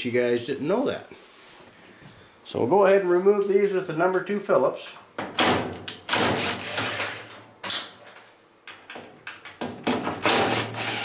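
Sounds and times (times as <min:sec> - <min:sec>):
cordless drill running: 0:06.4 - 0:07.2, 0:10.2 - 0:11.0.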